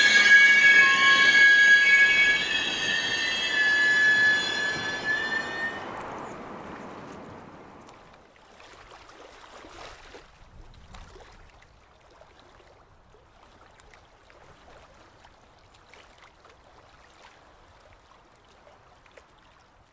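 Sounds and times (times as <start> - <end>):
passing train: 0.0 - 8.2
water lapping with small splashes: 5.8 - 19.9.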